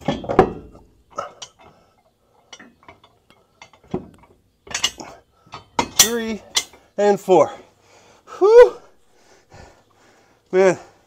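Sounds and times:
metallic clinks of nuts and bolts: 0.0 - 6.9.

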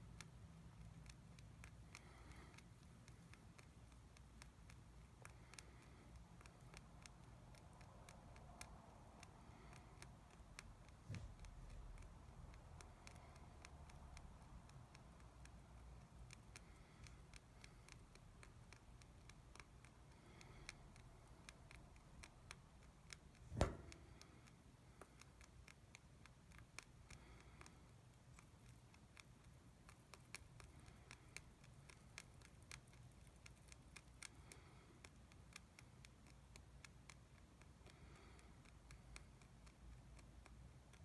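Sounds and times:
rabbit chewing hay: 0.0 - 41.0
short thump: 23.4 - 24.2.

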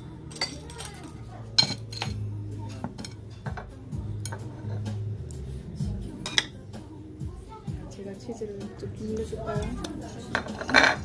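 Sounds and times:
cutlery clinking against dishes: 0.3 - 5.0, 6.2 - 6.6, 9.5 - 11.0.

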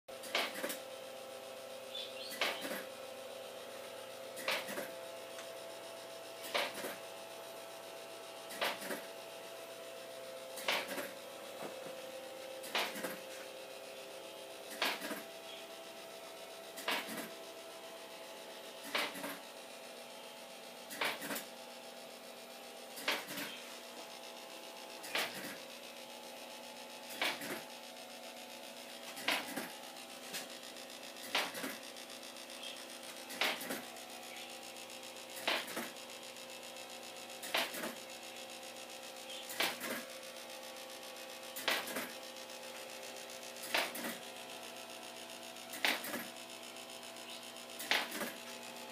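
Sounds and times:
sharp click: 43.6 - 44.1, 47.8 - 48.3.

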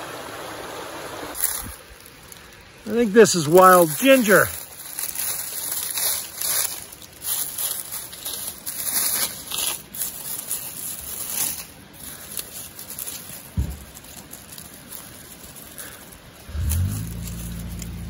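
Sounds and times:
dry leaves rustling: 1.3 - 18.0
low thump: 13.6 - 13.9.

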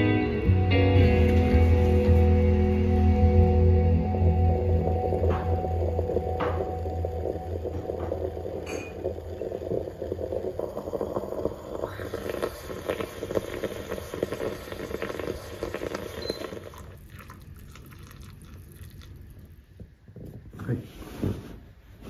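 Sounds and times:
moka pot coffee gurgling: 4.1 - 20.4.

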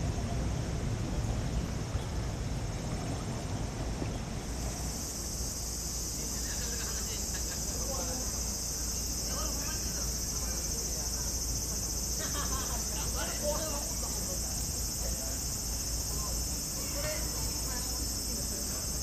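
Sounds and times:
cicadas droning: 0.0 - 19.0
low outdoor rumble: 0.0 - 19.0
faint distant voices: 5.8 - 19.0.

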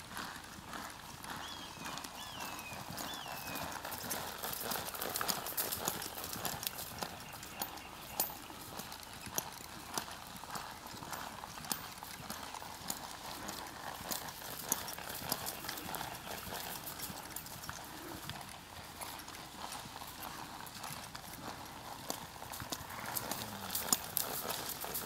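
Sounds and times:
horse hoofbeats on dirt: 0.0 - 25.0.

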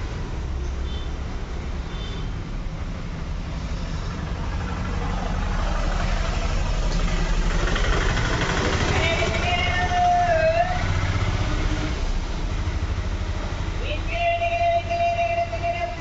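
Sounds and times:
vehicle engine idling: 0.0 - 11.1.

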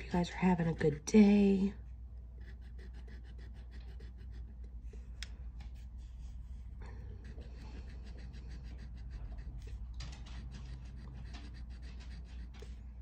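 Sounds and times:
scraping lottery ticket coating: 0.0 - 1.2, 2.4 - 4.8, 7.0 - 12.8
steady low hum: 0.0 - 13.0.

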